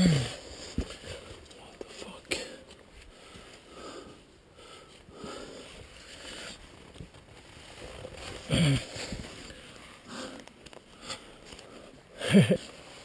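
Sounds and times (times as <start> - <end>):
person grunting with effort: 0.0 - 0.4, 8.5 - 9.0
clothing and hands rustling on rock: 0.2 - 13.0
faint breathing: 2.0 - 6.6, 8.8 - 12.2.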